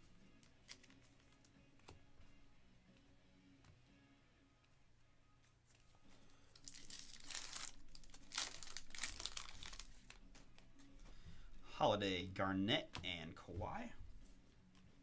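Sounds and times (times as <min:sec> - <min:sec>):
foil wrapper crinkling and tearing: 0:06.5 - 0:10.2.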